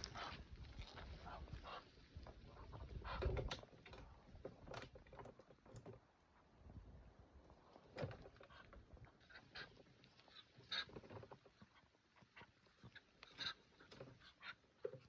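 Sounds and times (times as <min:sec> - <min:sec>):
duck stepping in wooden coop: 0:02.4 - 0:05.8, 0:07.8 - 0:09.7, 0:10.3 - 0:15.0.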